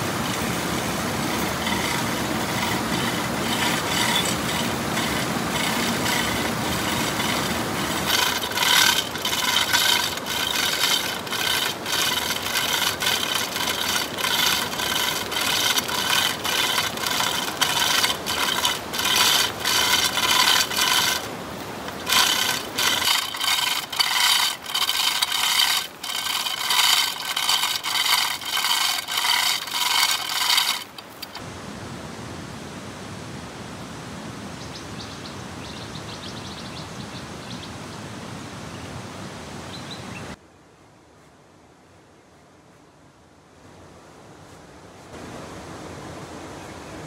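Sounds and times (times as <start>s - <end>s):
hand tool rasping on wood: 1.1s - 31.4s.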